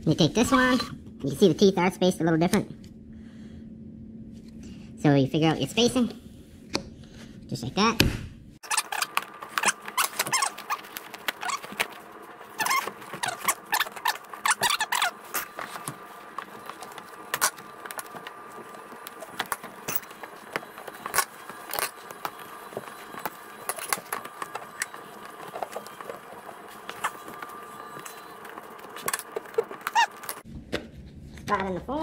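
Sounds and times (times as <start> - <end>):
plastic squeaking: 8.6 - 30.4.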